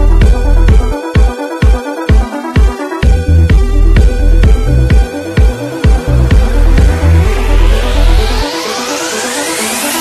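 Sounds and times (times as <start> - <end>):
heavy sustained bass line: 0.0 - 1.1, 2.6 - 9.5
rising synth sweep: 1.6 - 10.0.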